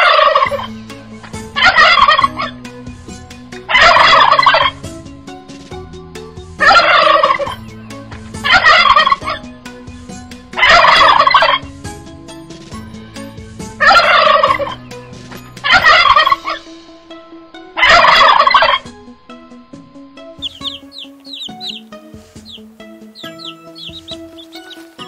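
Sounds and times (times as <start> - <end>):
turkey gobbling: 0.0 - 0.7, 1.5 - 2.5, 3.6 - 4.8, 6.6 - 7.6, 8.4 - 9.5, 10.6 - 11.7, 13.8 - 14.9, 15.6 - 16.6, 17.8 - 18.9, 20.4 - 25.0.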